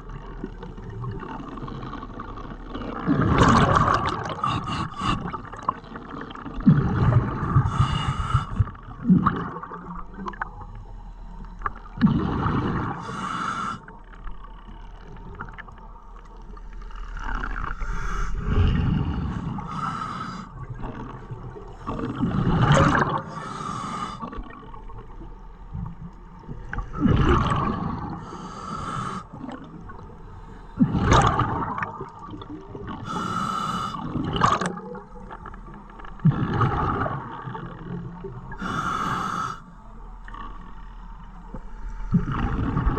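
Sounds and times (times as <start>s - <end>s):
exhaled bubbles underwater: 0.0s - 42.9s
hissing breath through regulator: 7.6s - 8.7s, 13.0s - 13.9s, 17.7s - 20.6s, 23.2s - 24.4s, 28.2s - 29.4s, 33.0s - 34.1s, 38.5s - 39.7s.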